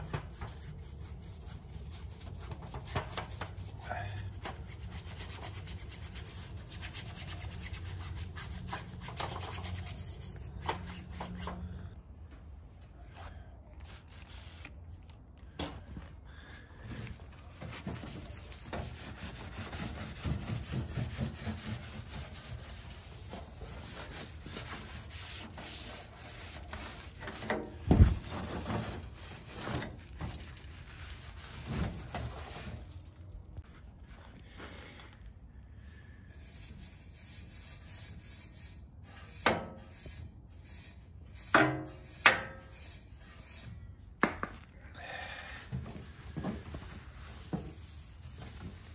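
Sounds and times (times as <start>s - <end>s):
cloth wiping metal casing: 17.0s - 34.3s, 45.8s - 48.9s.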